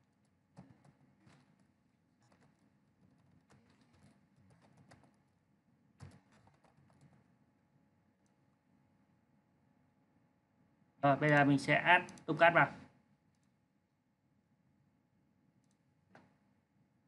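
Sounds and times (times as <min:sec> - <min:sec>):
faint computer keyboard typing: 0:00.0 - 0:05.4, 0:06.0 - 0:07.4, 0:12.0 - 0:12.4, 0:13.3 - 0:13.6, 0:15.6 - 0:16.4.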